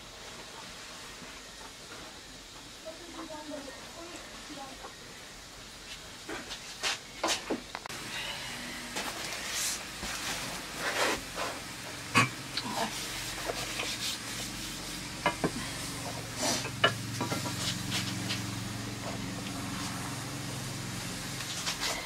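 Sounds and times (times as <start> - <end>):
plastic sack rustling: 8.9 - 11.6.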